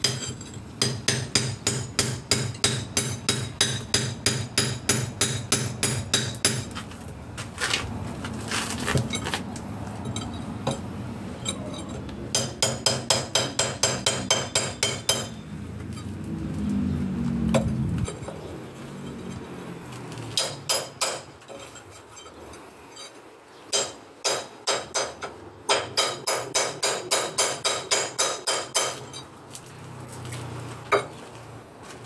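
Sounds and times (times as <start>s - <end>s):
hammer striking steel chisel: 0.0s - 6.7s, 12.3s - 15.4s, 20.4s - 21.3s, 23.7s - 29.2s.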